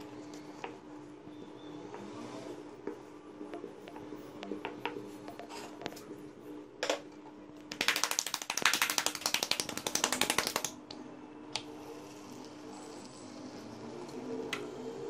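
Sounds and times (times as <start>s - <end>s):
dough slapped between palms: 7.7s - 10.8s.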